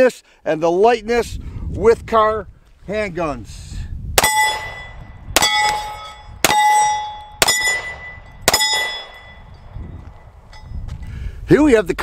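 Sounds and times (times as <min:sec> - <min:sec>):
pistol shots: 0:04.2 - 0:09.3
steel plate target ringing: 0:04.2 - 0:09.8.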